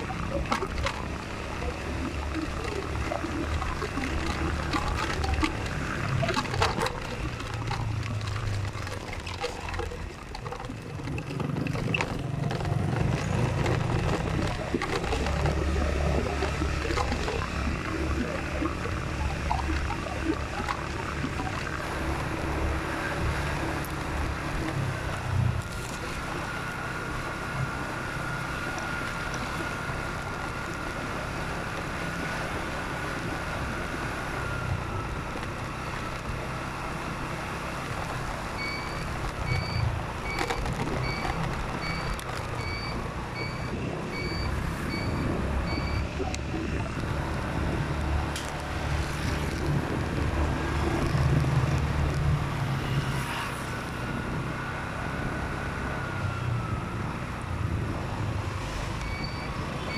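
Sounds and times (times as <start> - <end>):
road noise: 0.0 - 59.9
vehicle engine rumble: 0.0 - 59.9
short electronic beeps: 38.6 - 46.8, 59.0 - 59.9.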